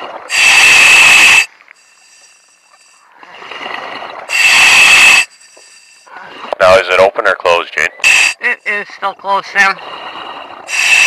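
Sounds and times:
diver breathing through regulator: 0.3 - 6.6, 8.0 - 8.4, 9.8 - 11.0.

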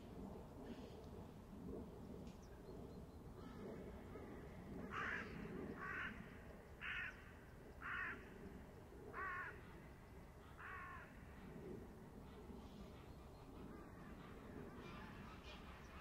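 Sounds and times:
faint low murmur: 0.0 - 16.0
crow cawing: 4.9 - 6.2, 6.8 - 8.2, 9.1 - 9.6, 10.6 - 11.2.

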